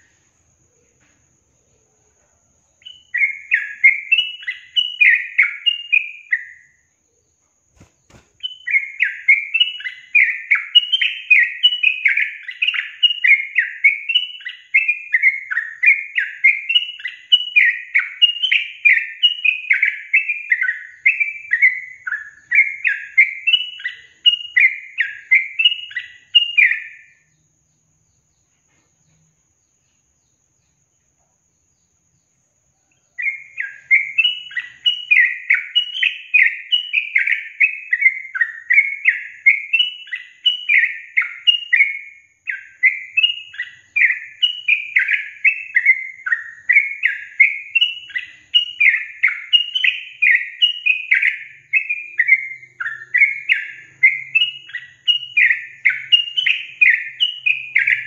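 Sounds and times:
bulbul bubbly chirping song: 0:33.0 - 0:58.0.

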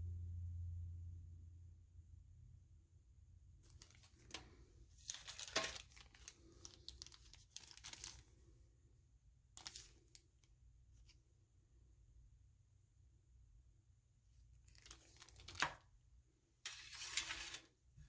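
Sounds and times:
plastic packets crinkling: 0:03.6 - 0:08.4, 0:09.6 - 0:10.4, 0:14.6 - 0:15.8.

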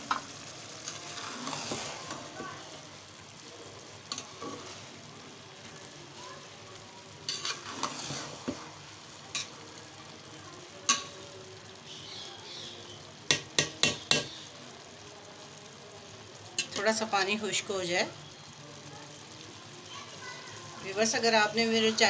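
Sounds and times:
rice bubbling in a pot: 0:00.0 - 0:22.0
metal spoon scraping a pot: 0:00.8 - 0:02.2, 0:07.3 - 0:08.6.

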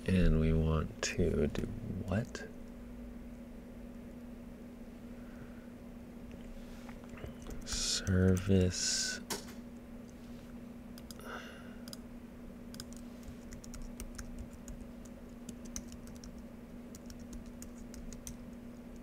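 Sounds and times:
low electrical hum: 0:00.0 - 0:19.0
typing on a keyboard: 0:12.7 - 0:14.8, 0:15.5 - 0:19.0.

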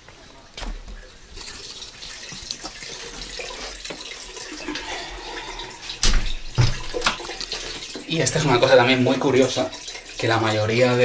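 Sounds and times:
water running: 0:00.0 - 0:11.0.

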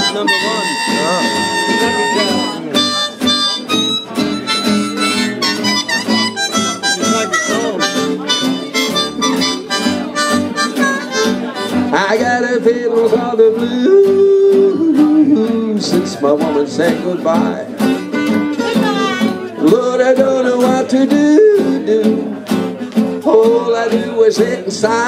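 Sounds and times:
harmonica blues solo: 0:00.0 - 0:12.1, 0:17.8 - 0:19.6
person singing: 0:00.0 - 0:22.5
acoustic guitars strumming: 0:00.0 - 0:25.0
upright bass: 0:00.0 - 0:25.0.

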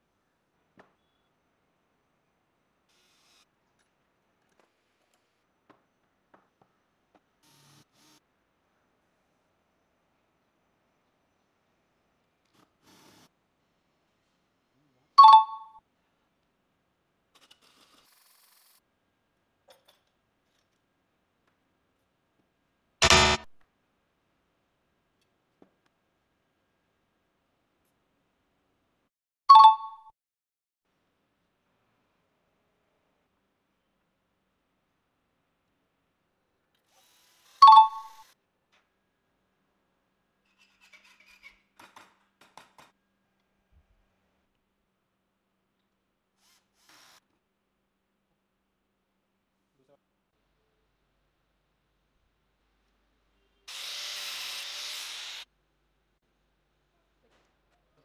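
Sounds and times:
bell-like ding: 0:15.2 - 0:15.8, 0:37.6 - 0:38.2.

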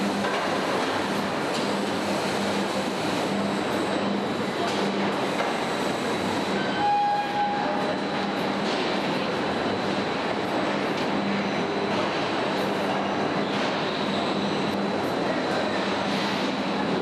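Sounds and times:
industrial machinery running: 0:00.0 - 0:17.0
short tone: 0:06.6 - 0:07.8.

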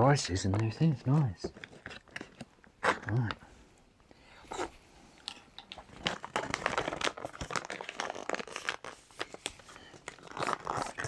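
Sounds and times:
pouch crinkling and rustling: 0:05.7 - 0:11.0.

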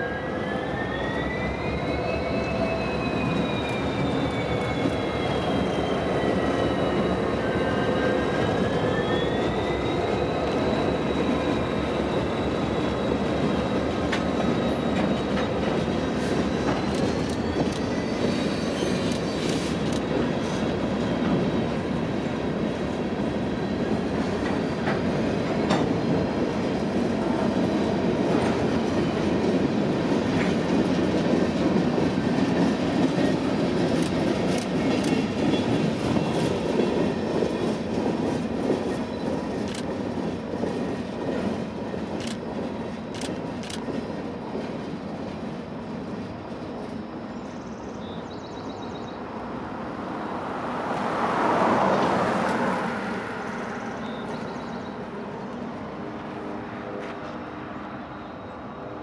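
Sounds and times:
high wavering wheel squeal: 0:00.0 - 0:19.8
freight train rolling past: 0:00.0 - 0:59.0.

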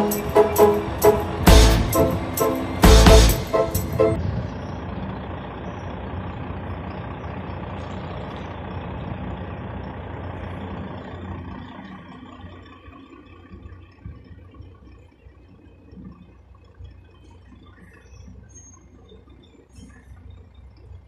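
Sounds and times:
background music: 0:00.0 - 0:04.2
truck engine running: 0:00.0 - 0:21.0.

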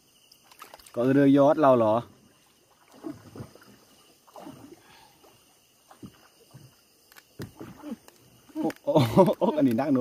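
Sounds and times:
water drips and small splashes: 0:00.0 - 0:10.0.

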